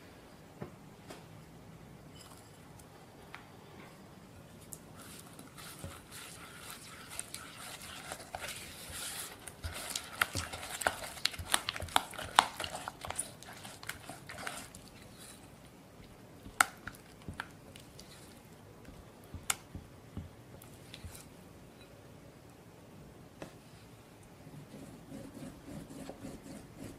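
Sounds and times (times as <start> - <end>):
spatula mixing in glass bowl: 5.0 - 21.3.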